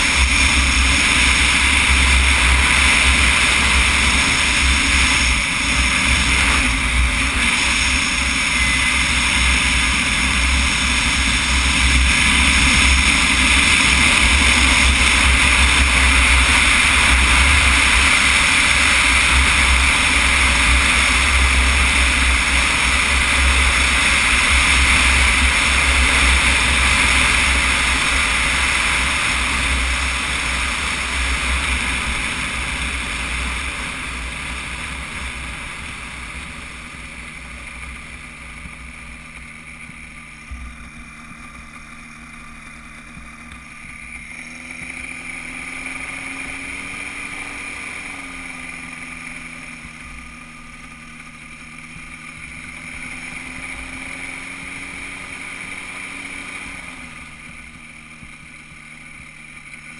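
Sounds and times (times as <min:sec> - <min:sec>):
light aircraft engine running: 0:00.0 - 0:59.9.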